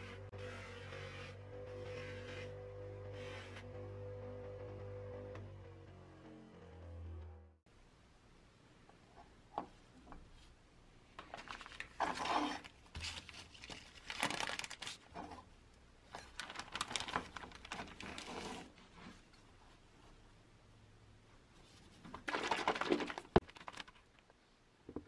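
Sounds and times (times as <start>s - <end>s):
plastic bag crinkling: 11.2s - 15.1s, 16.1s - 18.7s, 22.2s - 24.2s.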